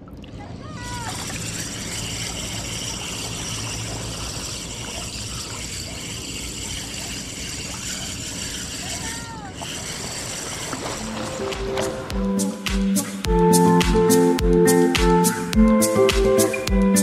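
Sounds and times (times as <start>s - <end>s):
water sloshing and trickling: 0.0s - 13.2s.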